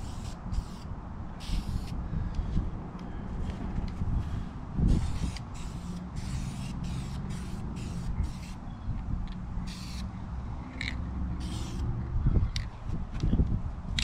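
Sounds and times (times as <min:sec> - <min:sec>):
aerosol spray can hissing: 0:00.0 - 0:02.0, 0:04.9 - 0:08.6, 0:09.7 - 0:10.0, 0:11.4 - 0:11.8.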